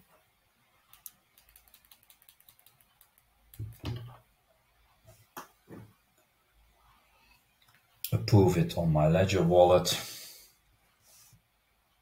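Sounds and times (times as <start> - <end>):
rapid faint clicking: 0.8 - 3.8.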